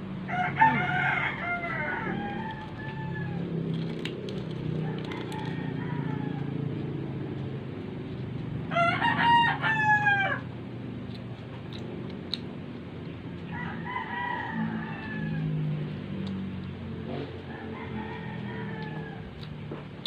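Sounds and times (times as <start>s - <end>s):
steady low hum: 0.0s - 20.0s
rooster crowing: 0.2s - 3.9s, 4.6s - 6.8s, 8.6s - 10.6s, 13.5s - 16.0s, 17.2s - 19.6s.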